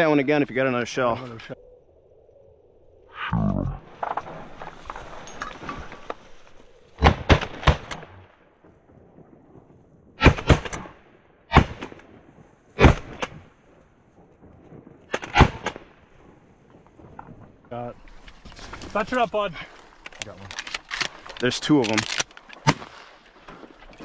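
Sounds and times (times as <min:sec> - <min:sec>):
shotgun blasts with echo: 0:07.0 - 0:08.3, 0:10.2 - 0:12.2, 0:12.8 - 0:13.5, 0:15.1 - 0:15.9.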